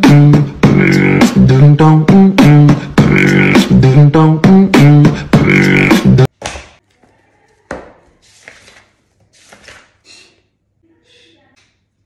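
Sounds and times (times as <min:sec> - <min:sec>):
music with beatboxed beat: 0:00.0 - 0:06.3
book pages turning: 0:07.0 - 0:10.0.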